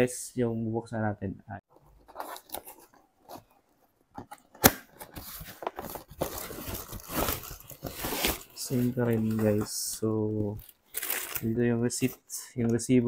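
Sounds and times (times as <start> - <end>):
cardboard flaps rustling and scraping: 4.2 - 9.7
cardboard box snapping open: 4.3 - 5.2.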